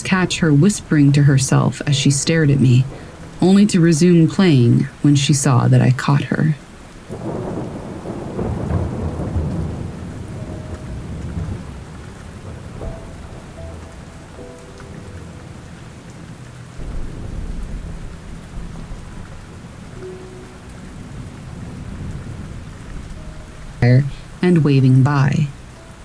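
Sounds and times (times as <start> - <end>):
steady rain: 0.0 - 26.0
rolling thunder: 7.0 - 24.4.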